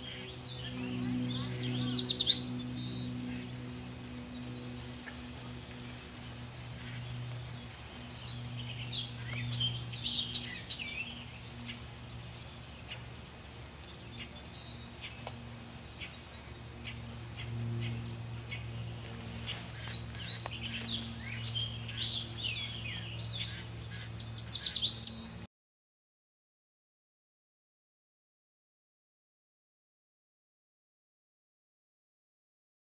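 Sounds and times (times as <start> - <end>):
songbirds chirping: 0.0 - 25.5.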